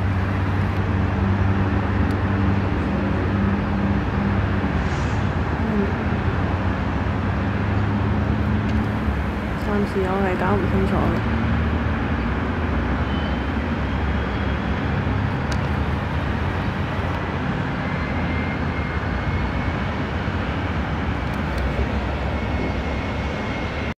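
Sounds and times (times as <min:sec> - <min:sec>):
city background rumble: 0:00.0 - 0:24.0.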